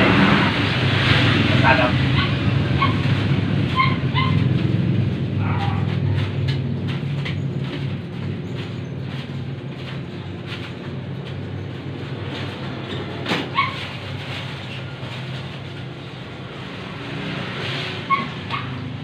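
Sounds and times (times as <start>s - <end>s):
short high yelps: 3.7s - 4.4s.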